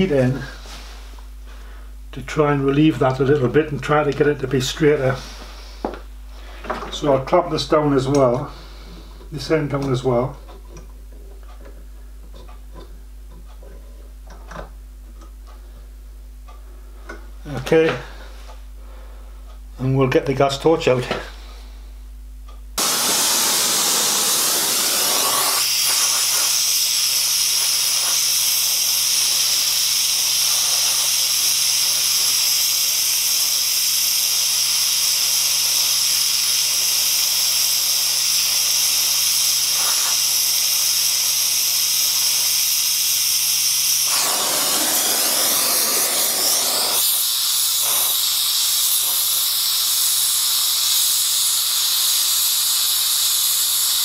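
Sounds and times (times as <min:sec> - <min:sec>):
torch flame hissing: 0:22.8 - 0:54.0.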